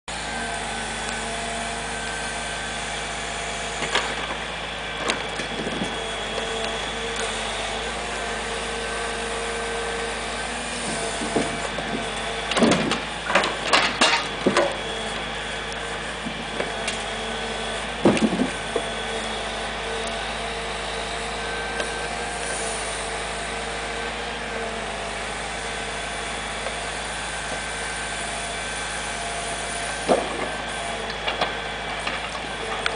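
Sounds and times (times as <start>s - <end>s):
crane hydraulics: 0.1s - 32.9s
truck engine running: 0.1s - 32.9s
loud knocks of logs set down: 5.0s - 6.6s, 10.7s - 15.2s, 16.2s - 19.2s, 29.7s - 32.9s.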